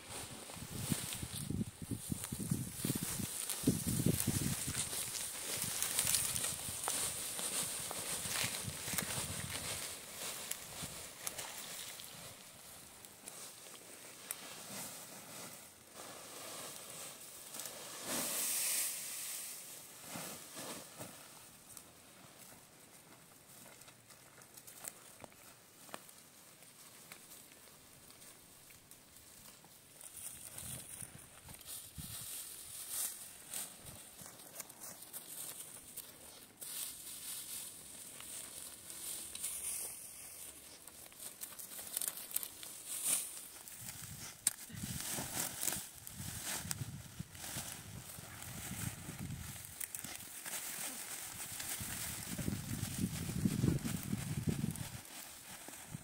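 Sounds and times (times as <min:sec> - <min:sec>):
dry straw rustling: 0:00.0 - 0:56.0
plastic sheet crinkling: 0:00.1 - 0:13.8, 0:29.8 - 0:56.0.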